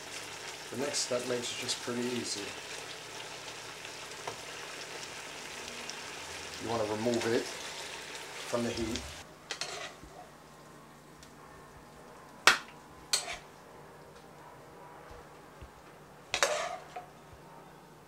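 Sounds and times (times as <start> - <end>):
metal spoon scraping skillet: 9.5 - 10.1, 13.1 - 13.5, 16.3 - 17.1.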